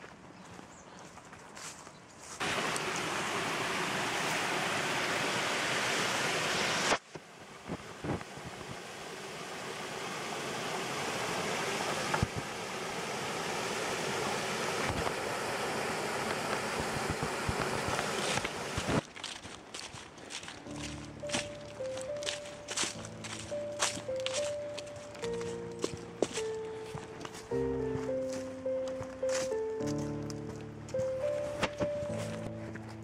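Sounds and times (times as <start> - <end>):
stream water rushing: 2.4 - 28.4.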